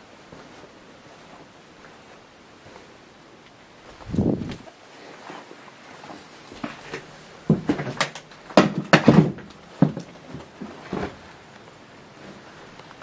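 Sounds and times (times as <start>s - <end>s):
footsteps over debris: 3.8s - 11.5s.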